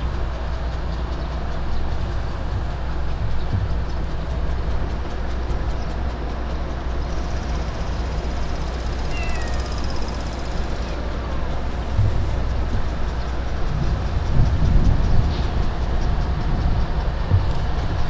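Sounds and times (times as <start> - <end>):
low outdoor rumble: 0.0 - 18.0
faint high chirp: 9.0 - 10.2.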